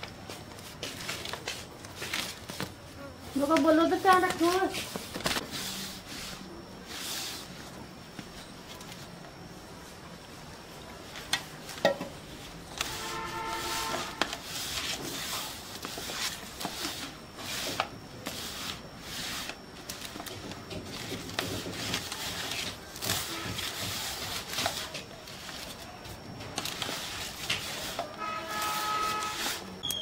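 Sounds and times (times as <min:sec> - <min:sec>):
hands kneading dough: 0:11.0 - 0:29.6
brief steady tone: 0:12.8 - 0:14.4, 0:28.0 - 0:30.0.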